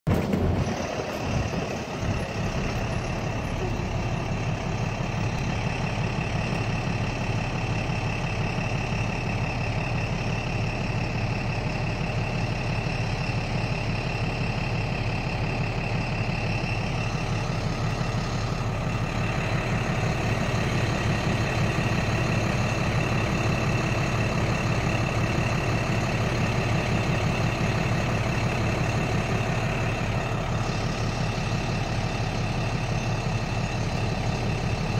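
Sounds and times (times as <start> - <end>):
truck engine running: 0.1 - 34.9.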